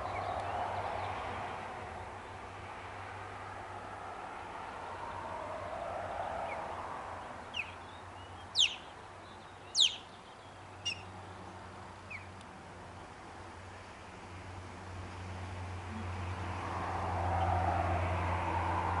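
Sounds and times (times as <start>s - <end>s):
faint rushing noise: 0.0s - 7.8s, 14.9s - 19.0s
osprey whistled calls: 7.5s - 8.9s, 9.7s - 10.1s, 10.8s - 11.1s.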